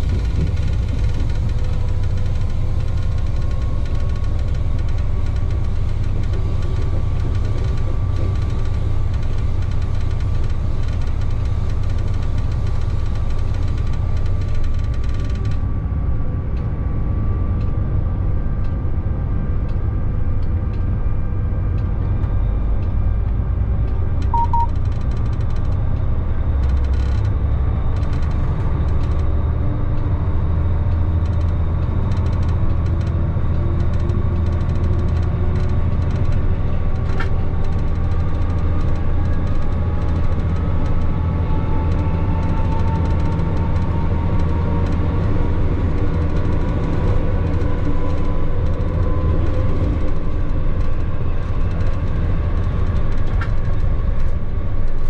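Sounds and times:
locomotive running rumble: 0.0s - 55.0s
faint whine: 24.4s - 24.8s
short high beep: 24.4s - 24.8s.

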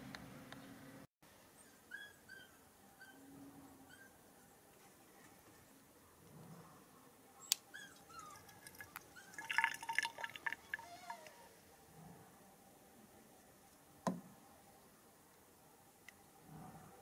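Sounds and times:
liquid gurgling into funnel: 8.5s - 11.2s.

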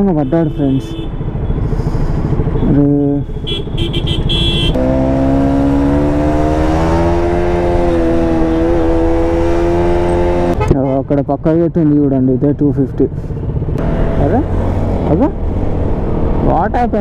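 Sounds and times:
traffic noise: 0.0s - 17.0s
motorcycle engine running: 13.1s - 17.0s.

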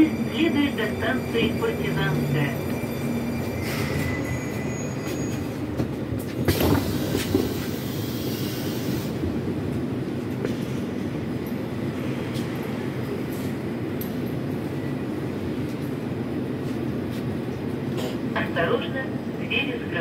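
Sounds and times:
high brake whine: 0.0s - 5.8s
stationary train hum: 0.0s - 20.0s
train braking and rumbling: 0.0s - 20.0s.

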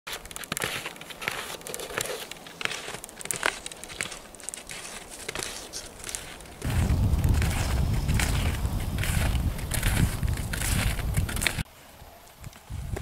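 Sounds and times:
snow crunching under skis and boots: 0.1s - 11.7s
low rumble: 6.6s - 11.6s.

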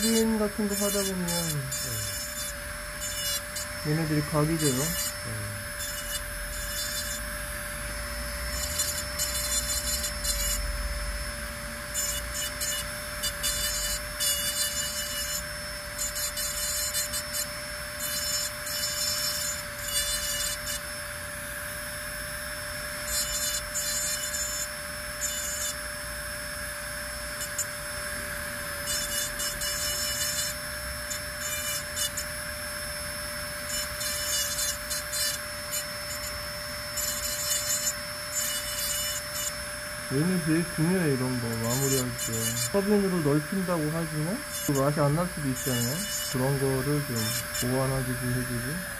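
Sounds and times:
bur grinding porcelain: 0.0s - 48.9s
dental handpiece whining: 0.0s - 48.9s.

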